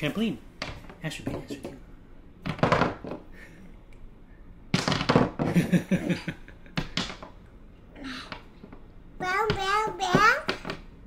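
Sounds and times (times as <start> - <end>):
toy knocking on cardboard: 1.2 - 1.8, 9.4 - 10.8
man and child laughing: 5.5 - 6.8.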